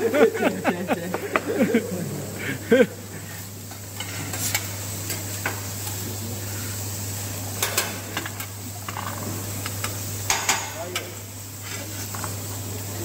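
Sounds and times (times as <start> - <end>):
rice sizzling on hot plate: 0.0 - 13.0
metal spatula scraping griddle: 4.0 - 5.2.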